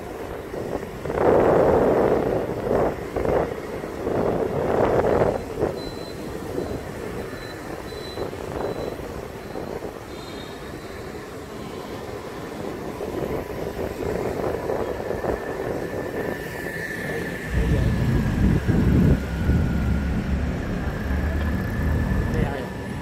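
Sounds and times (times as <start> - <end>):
city traffic noise: 0.0 - 23.0
low rumble: 17.4 - 22.5.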